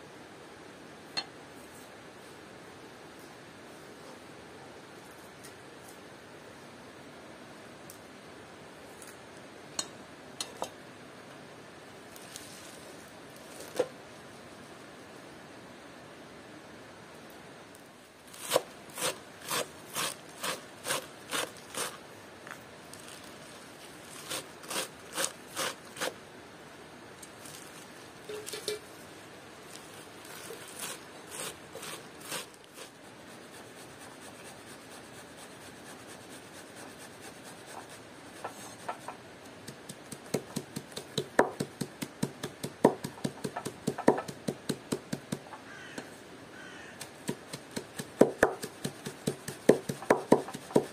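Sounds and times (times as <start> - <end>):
knife chopping on cutting board: 47.0 - 50.9.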